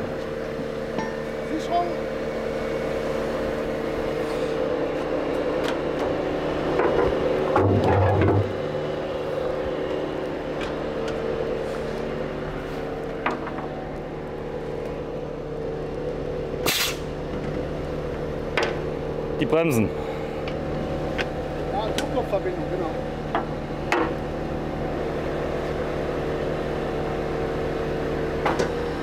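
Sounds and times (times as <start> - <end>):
diesel truck engine idling: 0.0 - 7.8, 8.4 - 29.0
engine rumble: 0.0 - 29.0.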